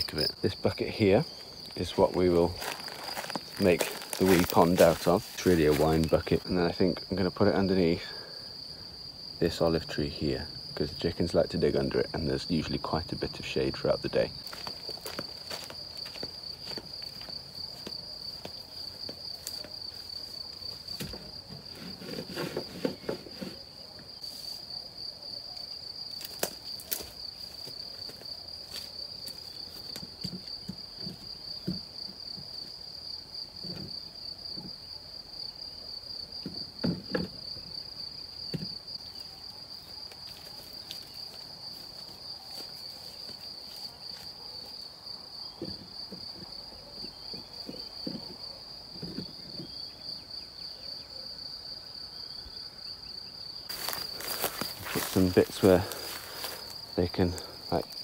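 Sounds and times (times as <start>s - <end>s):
insect trill: 0.0s - 58.0s
plastic bucket knocks and thuds: 36.4s - 37.4s, 38.5s - 38.8s.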